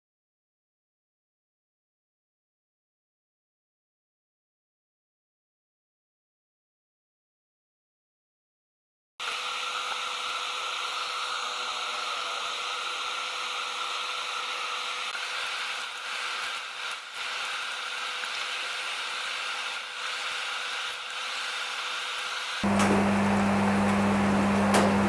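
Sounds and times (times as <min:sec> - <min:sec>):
steady mechanical hiss: 0:09.2 - 0:22.8.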